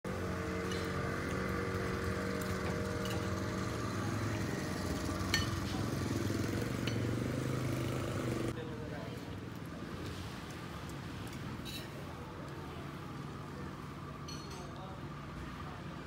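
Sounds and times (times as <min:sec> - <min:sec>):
small engine running: 0:00.1 - 0:08.5.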